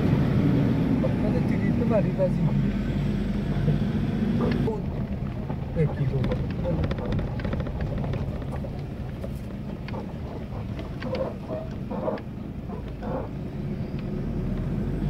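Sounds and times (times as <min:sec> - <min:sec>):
vehicle engine running: 0:00.0 - 0:15.0
knocks and rattles over bumps: 0:03.5 - 0:14.9.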